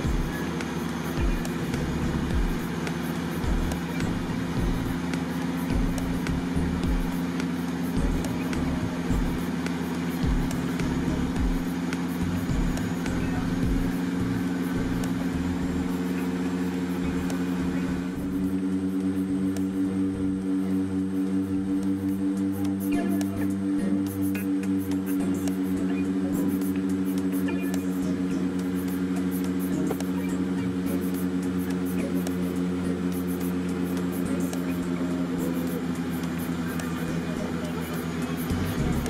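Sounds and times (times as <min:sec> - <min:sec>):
turboprop propeller drone: 0:00.0 - 0:39.0
uneven low rumble: 0:03.4 - 0:09.6.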